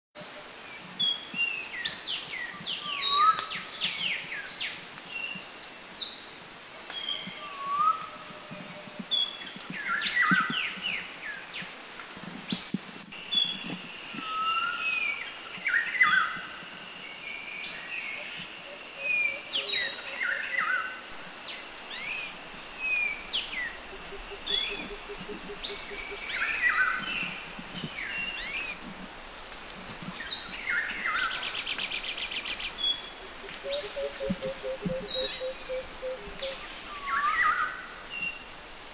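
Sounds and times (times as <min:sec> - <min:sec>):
high insect buzz: 0:00.2 - 0:38.9
birds chirping and whistling: 0:21.8 - 0:38.8.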